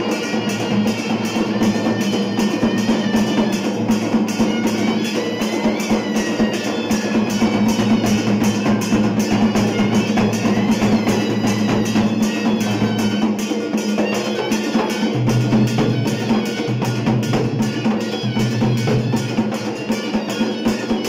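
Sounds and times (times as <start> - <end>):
barrel drum played by hand: 0.0 - 21.0
dhol beaten with sticks: 0.0 - 21.0.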